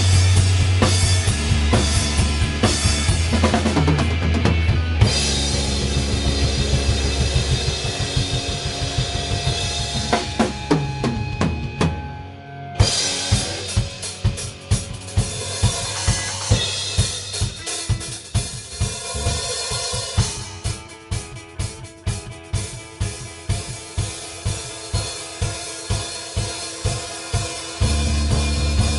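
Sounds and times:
drums steady beat: 0.0 - 12.2, 12.8 - 28.9
electric guitar chord ringing: 0.0 - 18.1
quiet electric guitar: 0.0 - 28.9.

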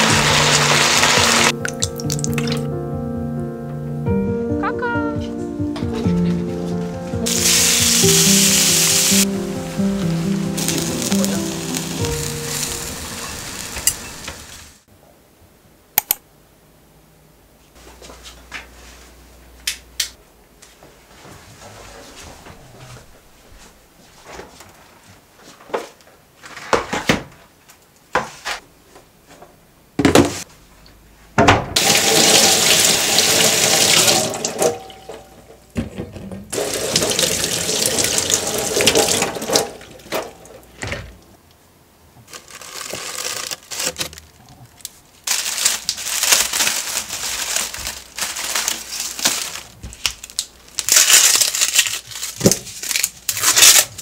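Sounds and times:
dry onion skin crackling: 42.3 - 54.0.

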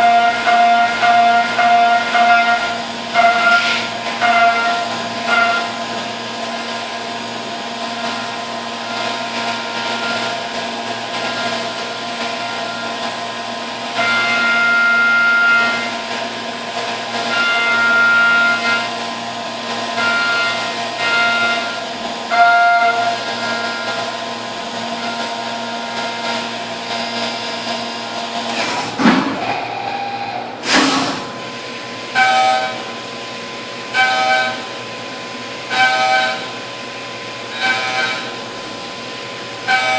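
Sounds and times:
tool cutting metal: 0.0 - 6.9, 7.9 - 13.2, 13.9 - 16.2, 17.0 - 19.0, 19.7 - 24.2, 30.6 - 31.4, 32.1 - 32.9, 33.9 - 34.8, 35.7 - 36.6, 37.5 - 38.5, 39.6 - 39.9
mill spindle whine: 0.0 - 39.9.

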